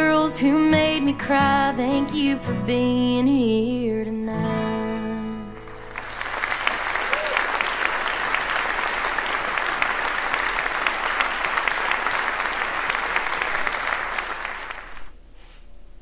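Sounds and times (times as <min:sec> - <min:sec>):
crowd applauding: 0:05.6 - 0:15.2.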